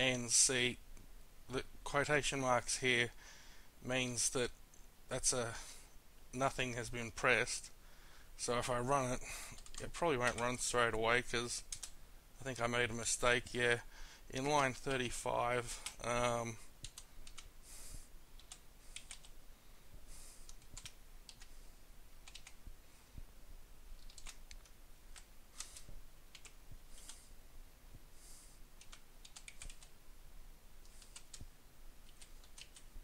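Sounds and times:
faint keyboard typing: 0:09.2 - 0:12.0, 0:15.6 - 0:17.6, 0:18.3 - 0:19.4, 0:20.0 - 0:22.8, 0:24.0 - 0:27.3, 0:28.8 - 0:30.0, 0:30.8 - 0:33.0.

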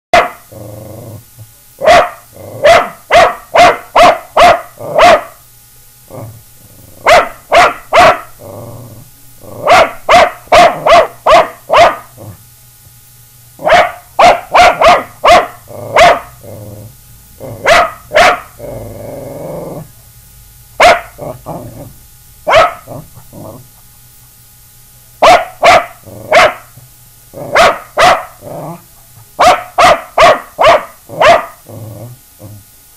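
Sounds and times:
small dog barking: 0:00.1 - 0:00.5, 0:01.8 - 0:05.4, 0:07.0 - 0:08.4, 0:09.6 - 0:12.1, 0:13.6 - 0:16.4, 0:17.5 - 0:18.6, 0:20.8 - 0:21.6, 0:22.4 - 0:23.6, 0:25.2 - 0:26.8, 0:27.4 - 0:28.4, 0:29.2 - 0:31.6
dog growling: 0:00.2 - 0:01.5, 0:02.3 - 0:02.9, 0:04.7 - 0:05.1, 0:06.1 - 0:07.1, 0:08.2 - 0:10.0, 0:12.1 - 0:12.4, 0:14.8 - 0:20.0, 0:20.9 - 0:22.0, 0:22.7 - 0:23.8, 0:25.8 - 0:26.6, 0:27.3 - 0:28.9, 0:30.7 - 0:32.7.

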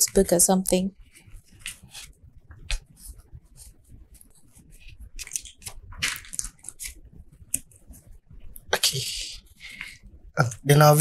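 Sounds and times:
pen writing on paper: 0:01.0 - 0:02.1
paper rustling and scratching: 0:01.0 - 0:08.0.

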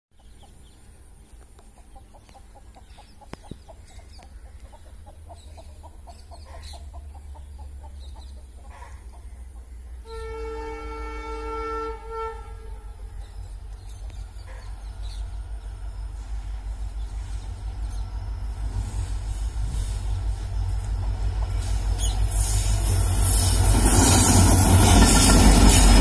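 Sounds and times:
locomotive horn blast: 0:10.0 - 0:13.2.

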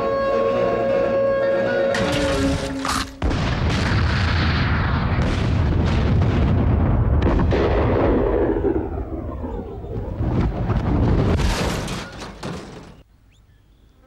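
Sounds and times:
music: 0:00.0 - 0:03.2
crackling bursts: 0:02.0 - 0:11.9
explosion booming: 0:03.2 - 0:11.8.

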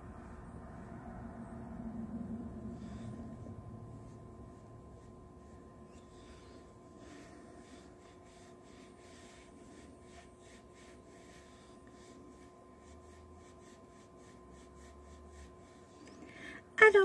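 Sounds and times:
makeup brush swishing on skin: 0:02.7 - 0:16.2.

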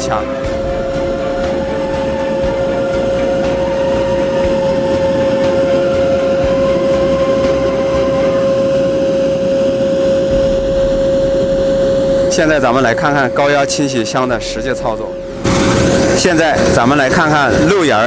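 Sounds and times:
machine drone with whine: 0:00.0 - 0:18.0
high-pressure water jet hissing: 0:15.4 - 0:18.0.

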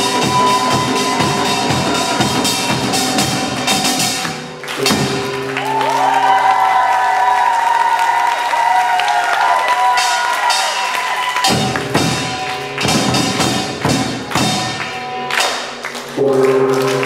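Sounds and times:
percussion ensemble drums and gongs: 0:00.0 - 0:06.5, 0:09.2 - 0:15.7
gongs ringing: 0:00.0 - 0:06.7, 0:09.6 - 0:15.7.

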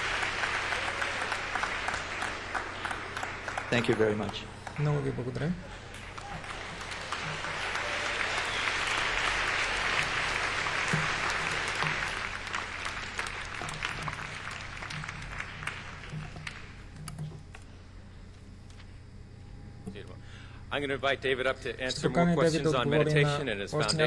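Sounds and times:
audience applauding: 0:00.0 - 0:16.8.

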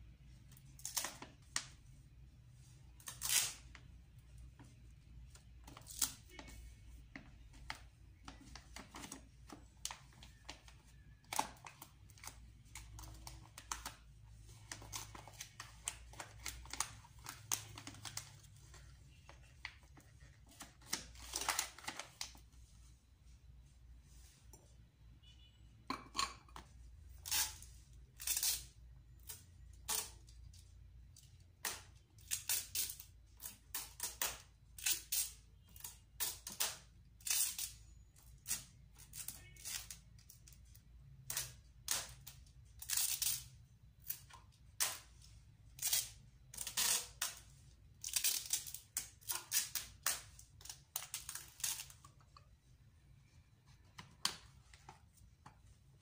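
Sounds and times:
paper and plastic rustling: 0:04.5 - 0:23.0.

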